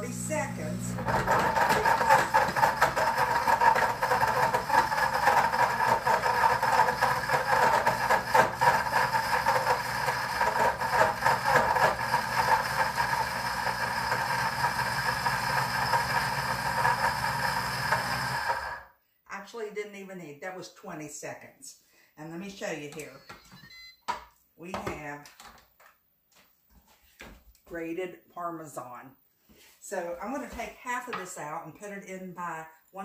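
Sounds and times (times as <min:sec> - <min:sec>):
blender motor grinding: 0:00.0 - 0:18.9.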